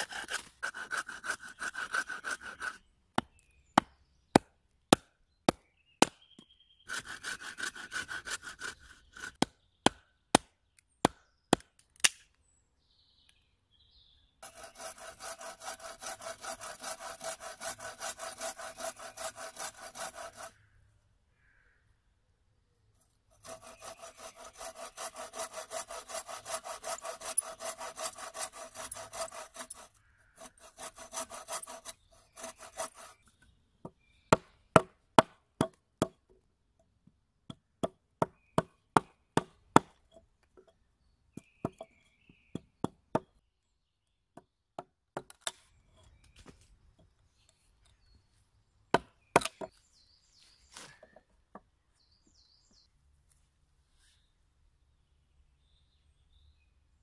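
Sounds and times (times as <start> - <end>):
bow saw cutting wood: 0.0 - 3.3, 6.9 - 9.4, 14.4 - 20.6, 23.3 - 33.3.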